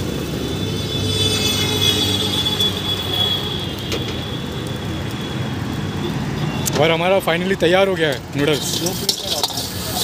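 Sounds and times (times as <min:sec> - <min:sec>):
high-pitched squeal: 0:00.3 - 0:04.4.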